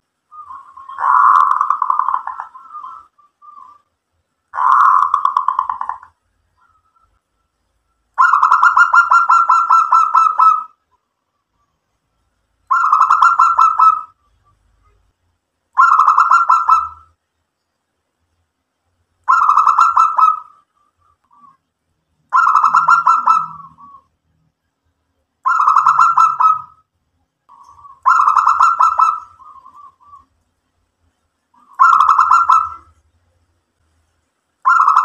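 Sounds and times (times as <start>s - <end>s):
dove cooing: 0.3s - 3.9s, 4.6s - 7.1s, 8.2s - 10.8s, 12.7s - 14.2s, 15.8s - 17.1s, 19.3s - 21.6s, 22.3s - 24.1s, 25.4s - 26.8s, 27.5s - 30.4s, 31.6s - 33.0s, 34.6s - 35.0s.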